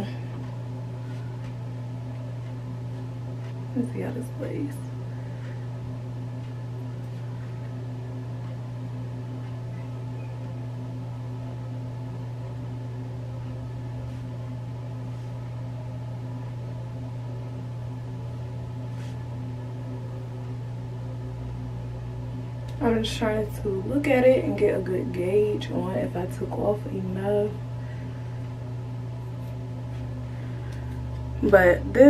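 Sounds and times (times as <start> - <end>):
exhaust fan humming: 0.0 - 32.0.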